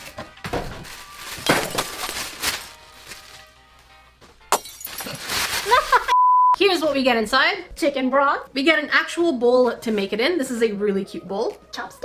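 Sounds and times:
clinks and rustles of unpacking: 0.0s - 3.4s, 4.6s - 6.0s
background music: 0.0s - 12.0s.

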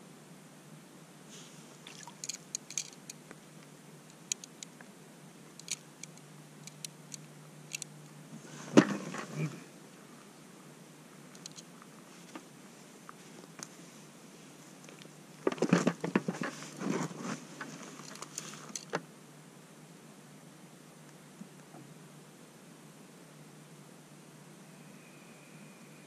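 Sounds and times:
fishing rod and line clicking: 1.9s - 3.4s, 4.1s - 4.8s, 5.5s - 8.0s, 11.3s - 11.7s.

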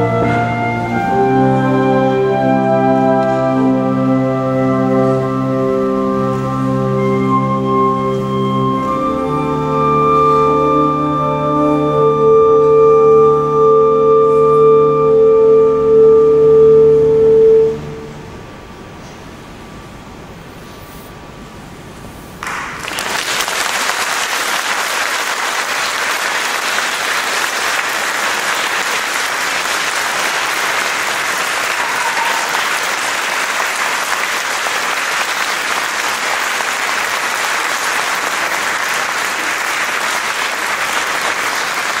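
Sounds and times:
audience applause: 22.4s - 42.0s.

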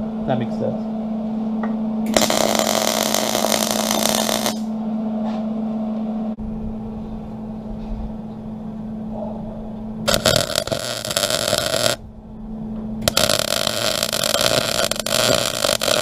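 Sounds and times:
low hum: 0.0s - 16.0s
welding arc buzzing: 2.0s - 4.8s, 10.0s - 12.0s, 13.0s - 16.0s.

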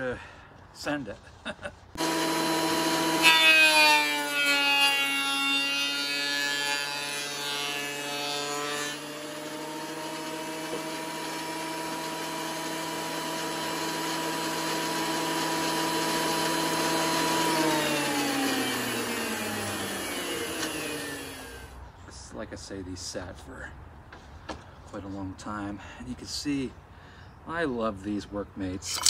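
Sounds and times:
thickness planer motor whine: 2.0s - 21.8s.

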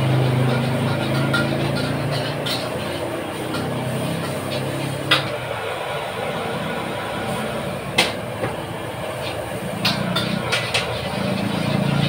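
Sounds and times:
metal spatula clanging on wok: 0.0s - 5.3s, 9.7s - 11.1s
gas burner rushing: 0.0s - 12.0s.

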